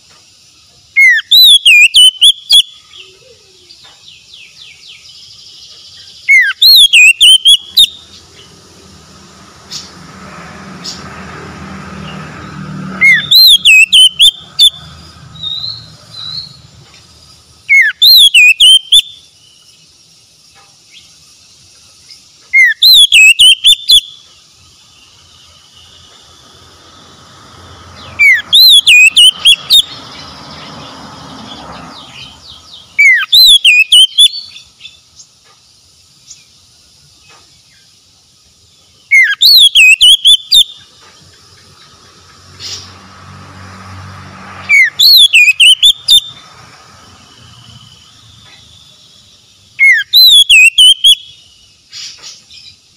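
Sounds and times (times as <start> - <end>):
bird singing whistle and warble: 0.9 - 8.6, 12.5 - 14.8, 15.4 - 16.7, 17.6 - 19.8, 22.0 - 24.3, 28.0 - 30.7, 31.5 - 35.3, 38.8 - 40.9, 44.6 - 46.4, 49.8 - 52.8.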